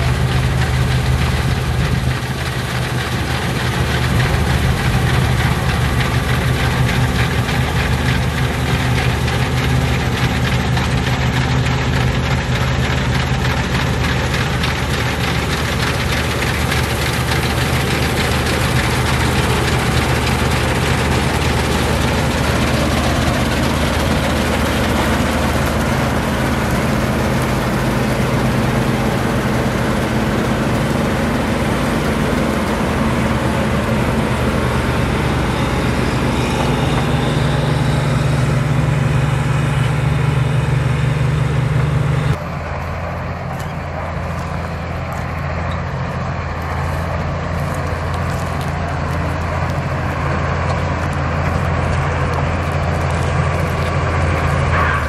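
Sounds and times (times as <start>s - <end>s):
combine harvester engine drone: 0.0s - 55.0s
threshing machinery whir: 0.0s - 55.0s.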